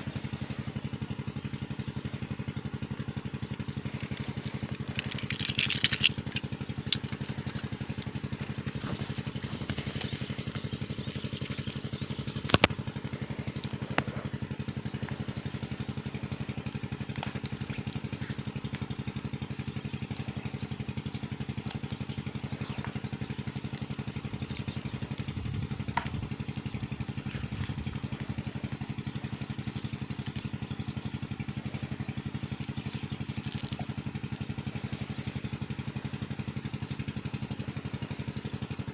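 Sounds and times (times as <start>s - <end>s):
small engine idling: 0.0s - 38.9s
sharp clicks: 3.5s - 8.1s, 11.4s - 14.1s.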